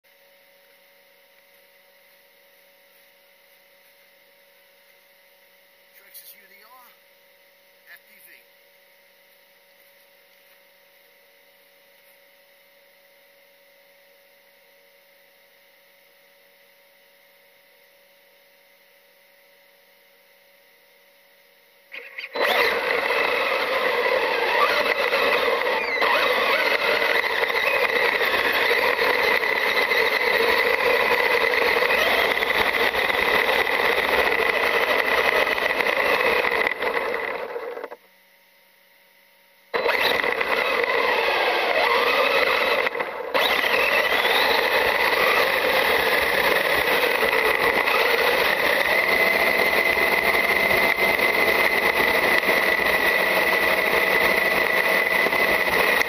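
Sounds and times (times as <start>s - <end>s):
constant high-pitched tone: 0.1s - 56.0s
rc truck driving over gravel: 22.0s - 37.9s, 39.8s - 56.0s.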